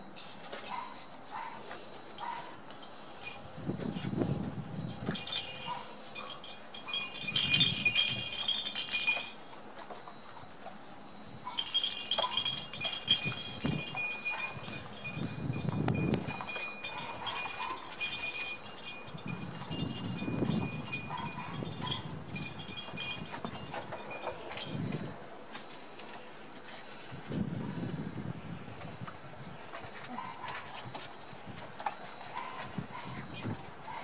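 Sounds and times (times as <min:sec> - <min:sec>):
metallic chime-like tinkling: 0:02.8 - 0:04.2, 0:04.9 - 0:09.4, 0:11.6 - 0:25.0.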